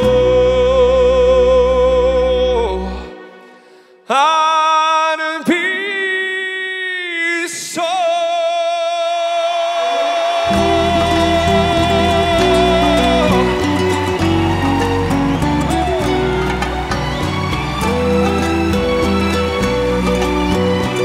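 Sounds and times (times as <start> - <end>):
string ensemble: 9.9 - 21.0.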